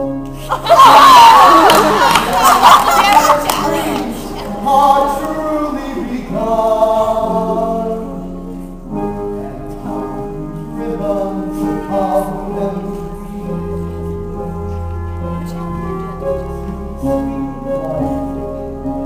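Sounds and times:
voices singing show tune: 0:00.4 - 0:08.1.

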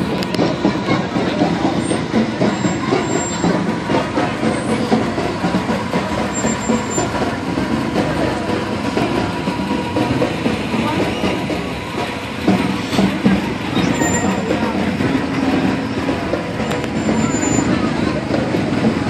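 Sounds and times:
bus engine rumbling: 0:00.0 - 0:19.0.

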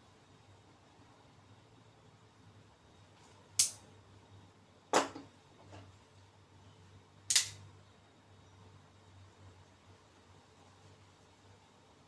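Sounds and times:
knife blades snapping into place: 0:07.3 - 0:07.6.

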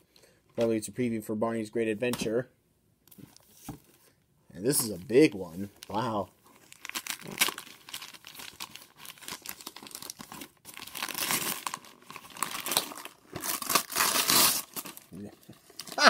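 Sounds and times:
wrapping paper tearing and crumpling: 0:05.8 - 0:16.0.

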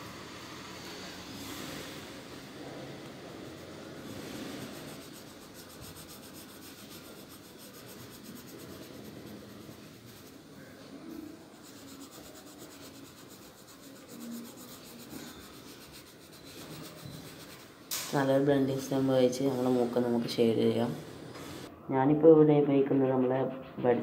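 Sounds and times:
pencil scratching on paper: 0:03.2 - 0:17.8.

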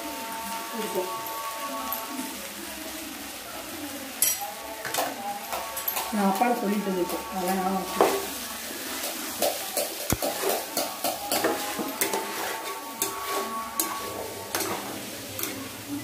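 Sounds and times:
light frying sizzle: 0:00.0 - 0:16.0
spatula scraping and clacking pan: 0:04.2 - 0:15.9.

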